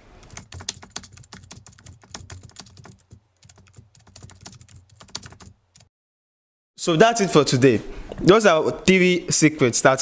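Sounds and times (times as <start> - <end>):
computer keyboard typing: 0.2 - 5.9.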